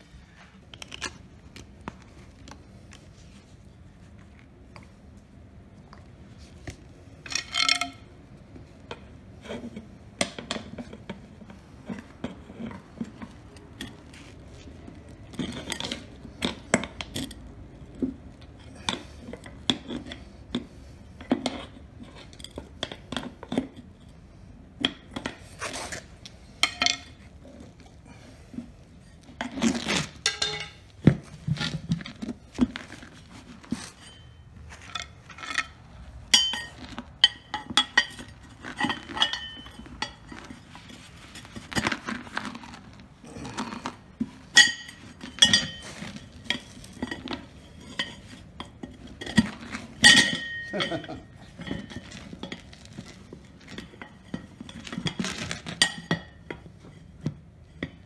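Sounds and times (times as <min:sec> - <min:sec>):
metal tools clanking on wheel rim: 0:15.2 - 0:42.8, 0:44.2 - 0:58.0.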